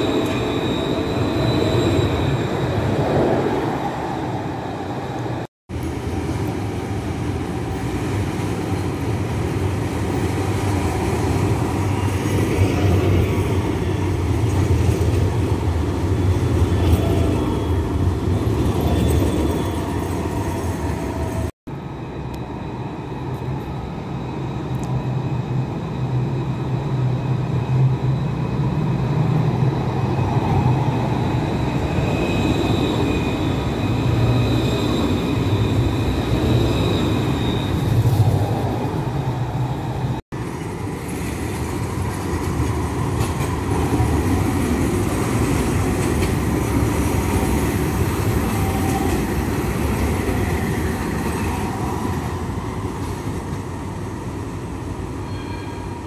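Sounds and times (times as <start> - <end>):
tram rumbling on rails: 0.0 - 56.0.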